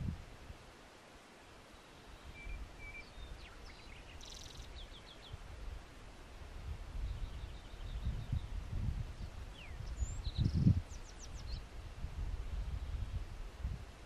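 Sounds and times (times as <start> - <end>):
low wind rumble: 0.0 - 14.0
small birds chirping: 1.7 - 5.5, 7.0 - 8.6, 9.2 - 11.7.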